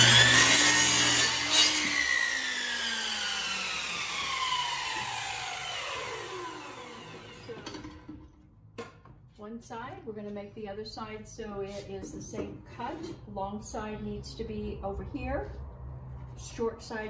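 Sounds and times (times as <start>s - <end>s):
miter saw cutting wood: 0.0s - 7.7s
saw motor winding down: 0.0s - 7.7s.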